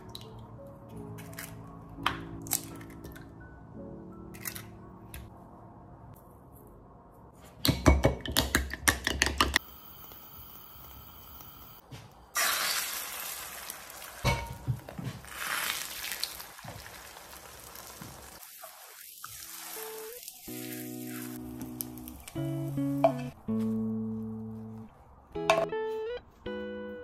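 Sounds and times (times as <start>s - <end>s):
eggs sizzling in frying pan: 12.4s - 23.0s.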